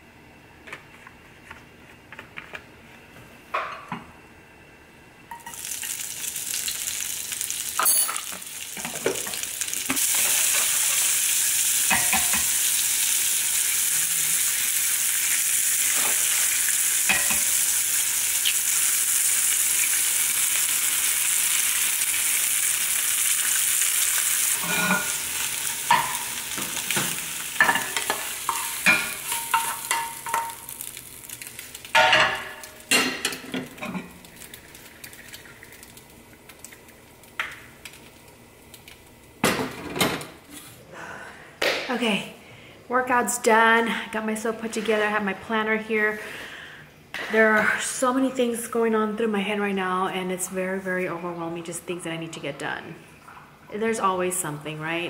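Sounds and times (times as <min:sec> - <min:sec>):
vegetables sizzling in oil: 0:05.3 - 0:39.5.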